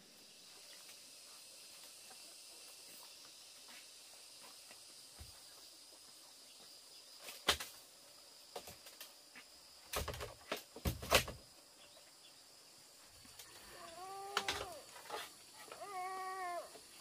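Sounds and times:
sharp knocks and clatters: 9.9s - 11.4s
small animal whining: 13.6s - 17.0s.

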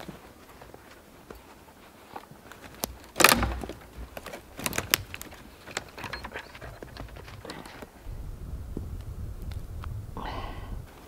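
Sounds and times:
branches brushing against a coat: 0.0s - 9.0s
twigs snapping: 2.1s - 8.0s.

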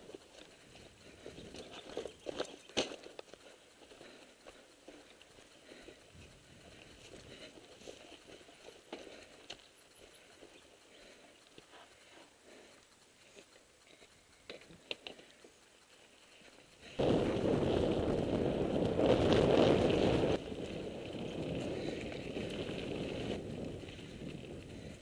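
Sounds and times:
light clicks: 0.0s - 17.0s.

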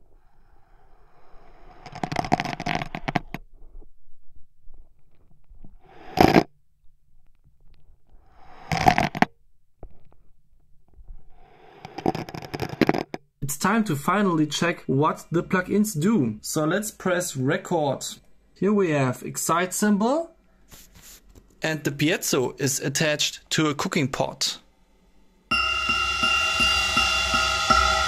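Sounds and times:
abacus beads sliding and clattering: 1.9s - 3.4s, 5.9s - 6.5s, 8.6s - 9.3s, 11.7s - 13.1s.

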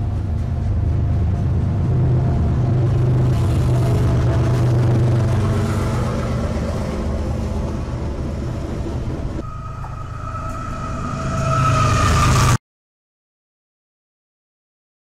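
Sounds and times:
diesel locomotive engine rumble: 0.0s - 12.6s
train noise: 0.0s - 12.6s
steady high tone: 9.4s - 12.6s.

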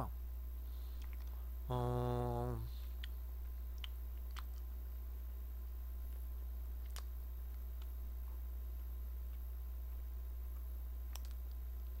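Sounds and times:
steady low hum: 0.0s - 12.0s
wet mouth clicks and lip smacks: 1.0s - 1.3s, 2.8s - 4.7s, 6.8s - 7.1s, 11.1s - 11.6s.

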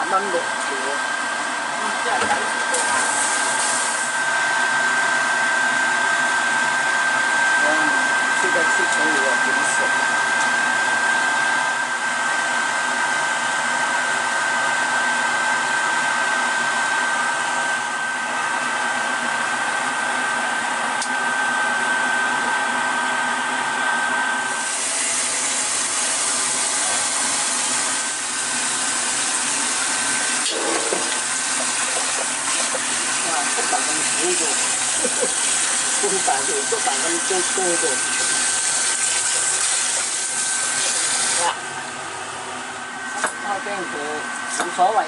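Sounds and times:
steady whir with high whine: 0.0s - 45.0s
tap running water into bowl: 30.4s - 36.3s.

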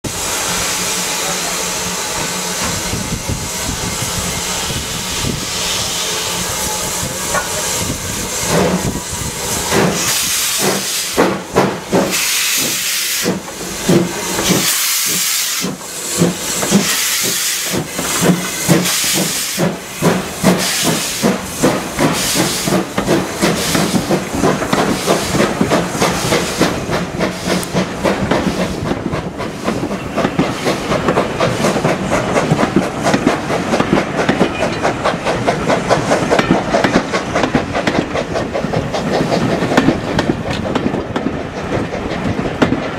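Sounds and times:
steam locomotive chuffs: 0.0s - 42.9s
steam hissing: 0.1s - 42.6s
wheels clicking over rail joints: 15.7s - 42.9s.

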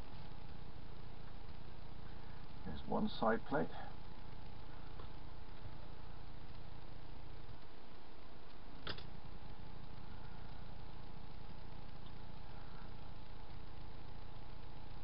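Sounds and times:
electric desk fan humming: 0.0s - 15.0s
sharp click: 8.8s - 9.1s.

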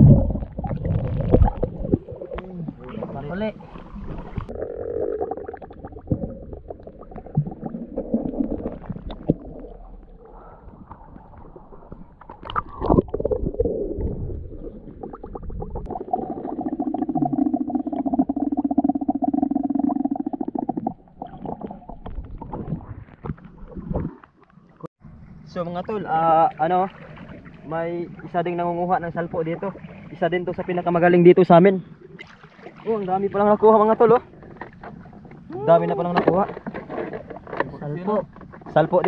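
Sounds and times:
knocks and clicks underwater: 0.0s - 3.1s, 3.9s - 24.9s, 34.3s - 39.0s
underwater rumbling and gurgling: 0.0s - 25.4s.

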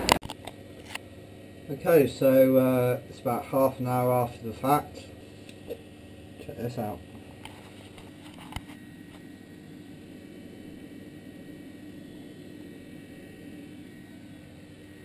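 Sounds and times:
low hum with faint tone: 0.0s - 15.0s.

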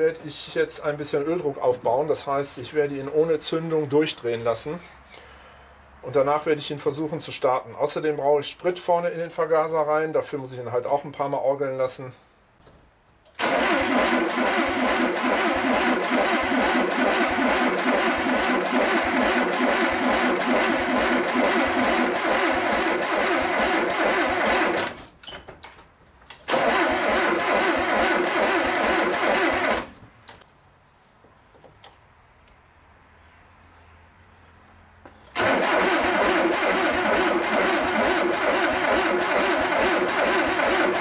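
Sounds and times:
engine cranking on starter: 13.3s - 25.1s, 26.4s - 30.0s, 35.3s - 41.0s.

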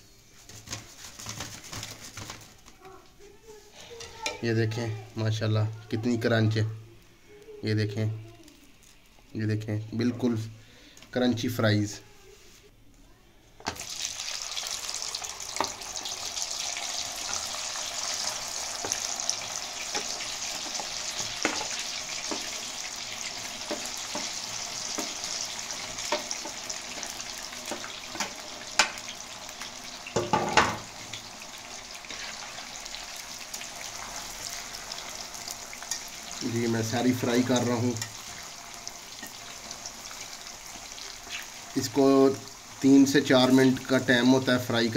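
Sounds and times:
fries sizzling in hot oil: 13.6s - 44.9s.

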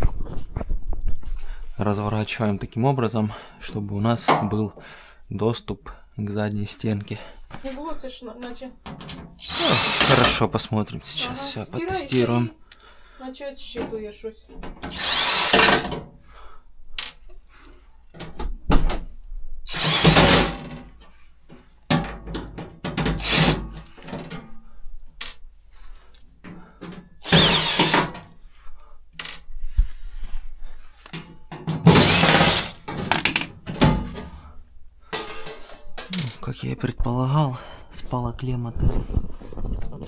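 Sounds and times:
cordless drill whirring: 9.4s - 10.4s, 14.8s - 15.9s, 19.7s - 20.7s, 23.2s - 23.6s, 27.2s - 28.1s, 31.9s - 32.8s.

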